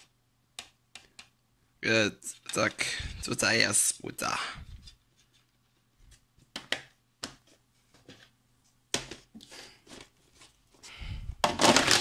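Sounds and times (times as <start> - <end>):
plastic cases clicking and knocking: 11.4 - 12.0
plastic cases scraping and clattering: 11.4 - 12.0.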